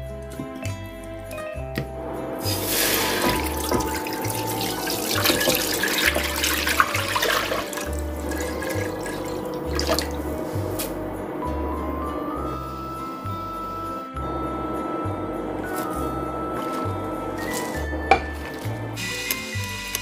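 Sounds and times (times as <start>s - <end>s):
water pouring into a pot: 2.4s - 10.4s.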